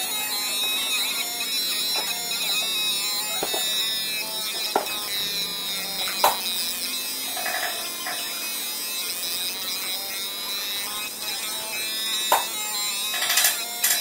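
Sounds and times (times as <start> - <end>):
laser machine high-pitched buzz: 0.0 - 14.0.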